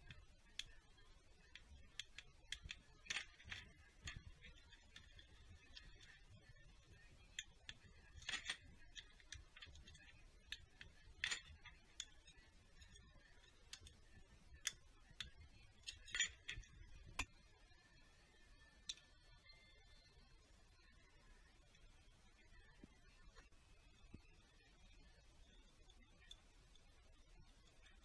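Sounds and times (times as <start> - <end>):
small metallic clicks and taps: 0.0 - 17.4, 18.8 - 19.2, 25.4 - 28.0.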